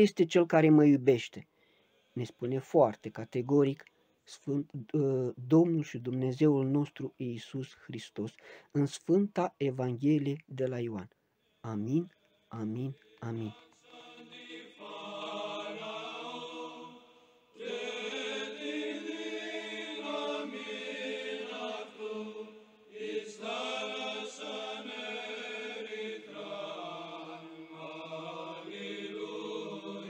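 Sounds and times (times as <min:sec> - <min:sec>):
voices chanting: 0:11.6 - 0:30.0.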